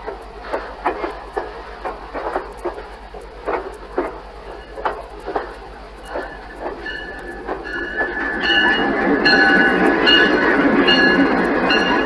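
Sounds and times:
train wheels clicking over rail joints: 0.0s - 12.0s
high wheel squeal: 6.0s - 12.0s.

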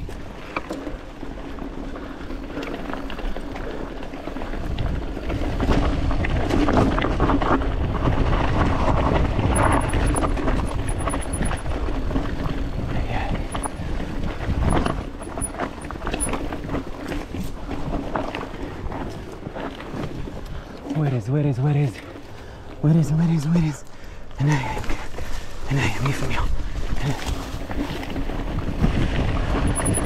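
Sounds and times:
tyres on rocky ground: 0.0s - 30.0s
wind buffeting microphone: 4.3s - 20.9s, 26.4s - 30.0s
bike clicks and knocks: 8.9s - 12.6s, 13.5s - 20.5s, 29.5s - 30.0s.

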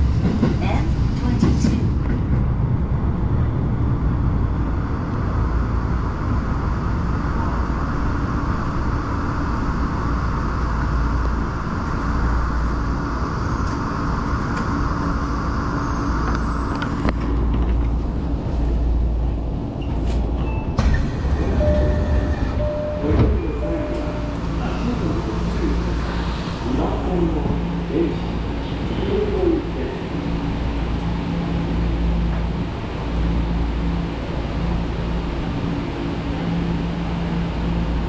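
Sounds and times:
subway train wheels rumbling: 0.0s - 38.0s
steady tones: 21.2s - 28.8s.

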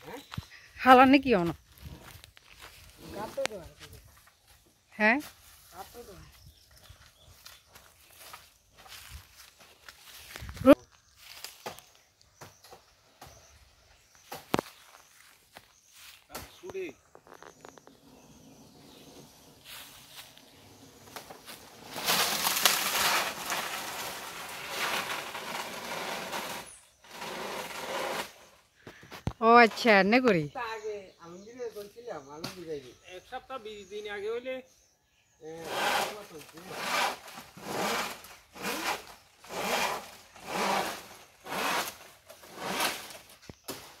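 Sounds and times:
dry palm fronds rustling: 1.6s - 4.6s, 6.9s - 12.1s, 14.3s - 28.6s, 35.7s - 44.0s
saw rasping on wood: 24.8s - 28.4s, 35.6s - 43.2s.

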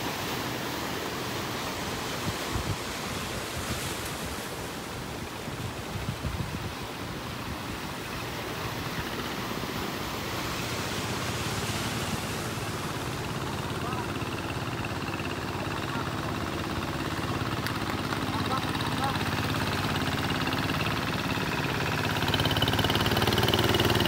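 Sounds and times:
surf breaking on rocks: 0.0s - 22.4s
wind gusting on microphone: 2.0s - 9.2s.

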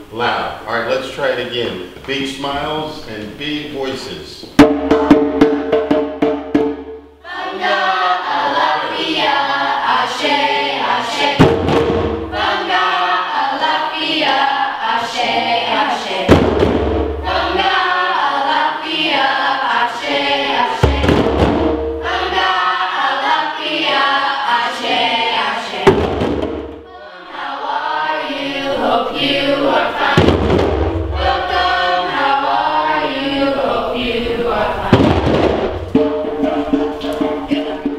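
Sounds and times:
djembe drumming: 4.4s - 9.5s, 11.1s - 13.1s, 16.2s - 18.5s, 20.1s - 24.0s, 24.8s - 27.1s, 29.2s - 33.1s, 34.8s - 37.9s
children chanting in unison: 7.2s - 16.5s, 17.2s - 26.2s, 26.9s - 37.9s
deep bass drum stroke: 11.4s - 12.6s, 16.3s - 17.7s, 20.8s - 22.4s, 25.9s - 26.9s, 30.0s - 31.9s, 34.9s - 37.9s.

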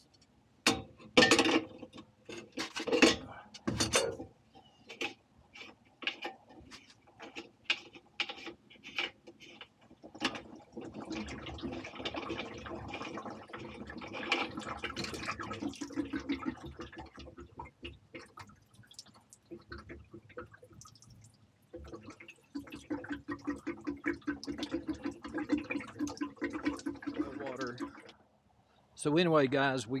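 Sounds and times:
water dripping: 9.8s - 28.2s
water running out: 10.1s - 28.1s.

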